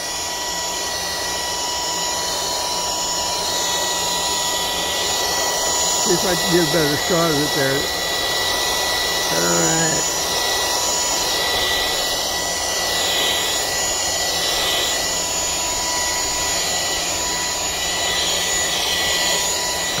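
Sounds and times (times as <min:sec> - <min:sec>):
handheld vacuum running: 0:00.0 - 0:20.0.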